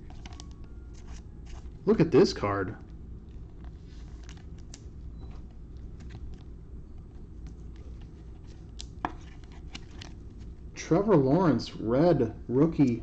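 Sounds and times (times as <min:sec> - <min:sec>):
trading cards handled: 0:00.0 - 0:01.8, 0:02.8 - 0:10.6.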